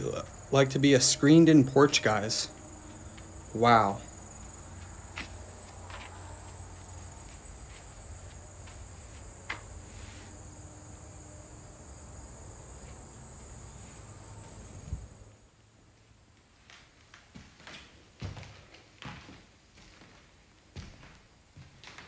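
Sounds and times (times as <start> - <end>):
insects chirring: 0.0 - 15.7.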